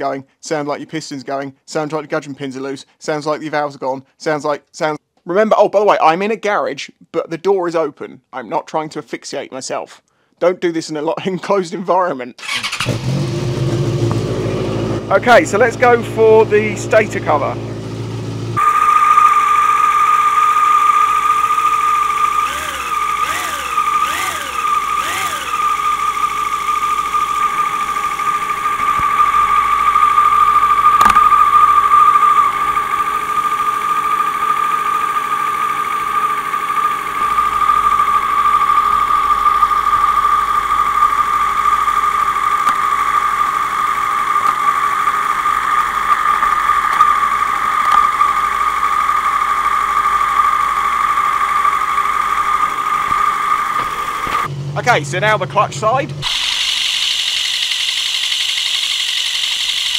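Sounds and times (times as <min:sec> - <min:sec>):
engine throttle blips: 0:12.4 - 0:59.9
motorcycle engine idling with whine: 0:12.4 - 0:59.9
sharp click: 0:30.9 - 0:31.8, 0:45.8 - 0:47.2, 0:47.8 - 0:48.2.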